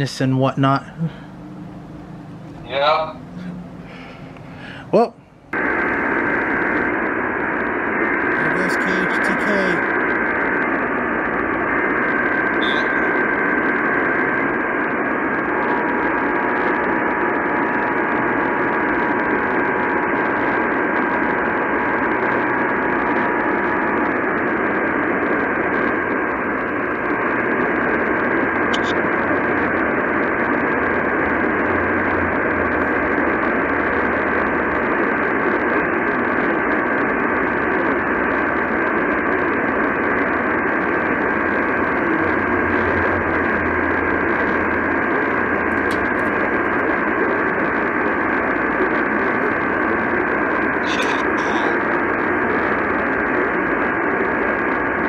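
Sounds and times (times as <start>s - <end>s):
radio static hiss: 0.0s - 55.0s
high whistle: 12.6s - 13.0s.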